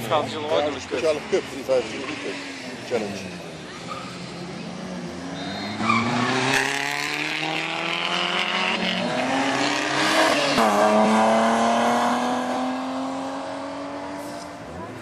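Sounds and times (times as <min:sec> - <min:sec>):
rally car engine accelerating: 0:04.9 - 0:15.0.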